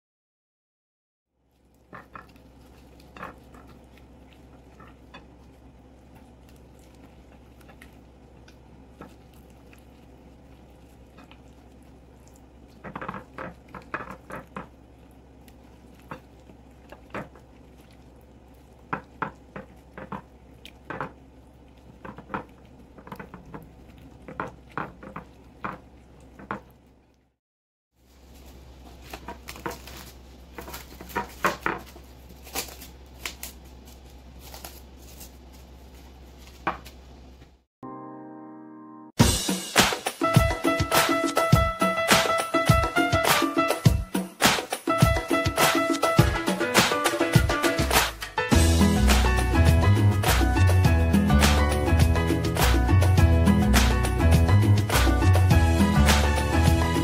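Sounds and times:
cling film crinkling: 0:01.4 - 0:27.0, 0:28.0 - 0:37.4
wet squelches of raw meat: 0:01.4 - 0:27.2
steady low hum: 0:01.4 - 0:27.3, 0:28.0 - 0:37.6.

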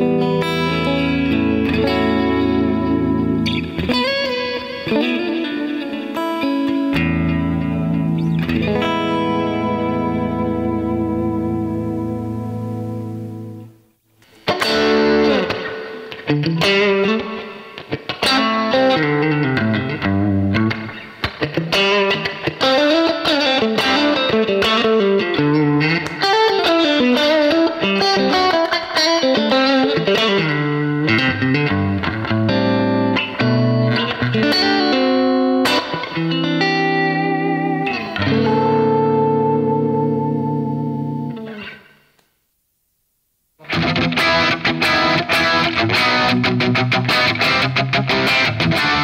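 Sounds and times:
electric guitar: 0:00.0 - 0:42.4, 0:43.6 - 0:49.0.

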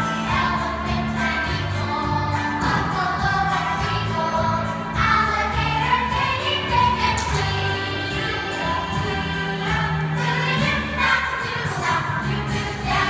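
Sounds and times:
youth choir singing: 0:00.0 - 0:13.0.

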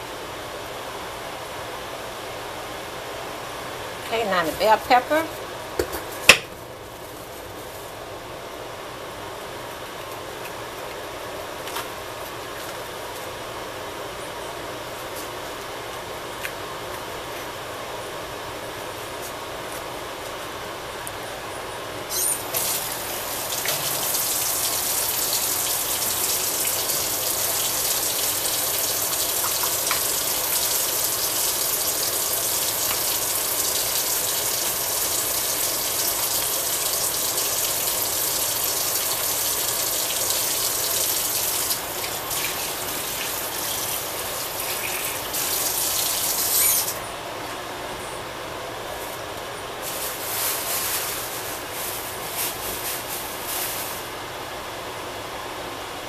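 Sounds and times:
tap running into sink: 0:23.5 - 0:24.6.

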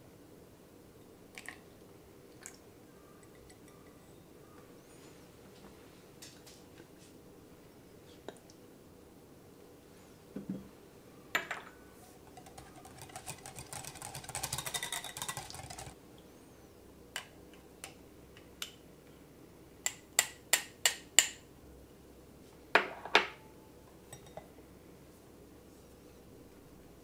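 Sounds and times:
whisk clicking in glass bowl: 0:12.3 - 0:16.0.

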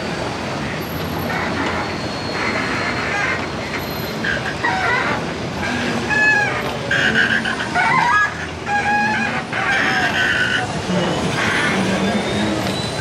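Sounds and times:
ferry engine running: 0:00.0 - 0:13.0
people's voices: 0:03.0 - 0:13.0.

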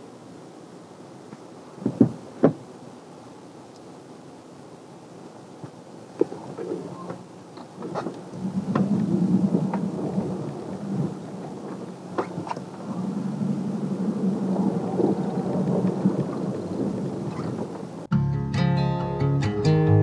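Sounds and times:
clicks and knocks in cab: 0:01.8 - 0:02.6
truck engine hum: 0:05.7 - 0:18.5.

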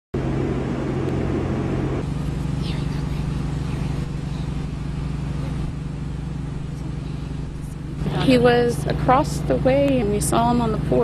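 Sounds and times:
vehicle engine running: 0:00.2 - 0:11.0.

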